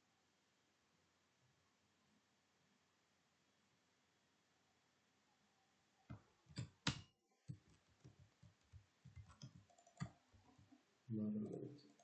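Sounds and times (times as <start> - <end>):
computer keyboard keystrokes: 6.5 - 10.7.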